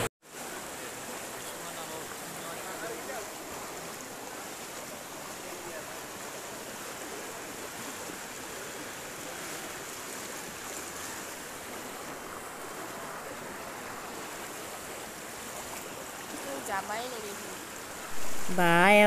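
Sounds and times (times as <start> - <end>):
floodwater rushing: 0.0 - 19.0.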